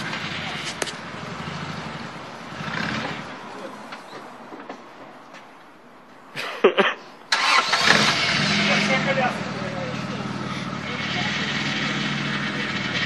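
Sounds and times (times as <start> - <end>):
truck engine running: 0.0 - 5.2, 7.3 - 13.0
engine cranking whine: 7.3 - 13.0.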